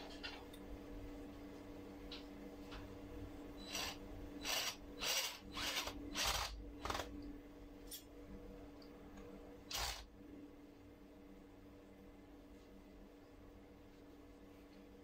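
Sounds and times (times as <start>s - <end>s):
cordless drill driving a screw: 3.7s - 6.5s, 9.7s - 10.0s.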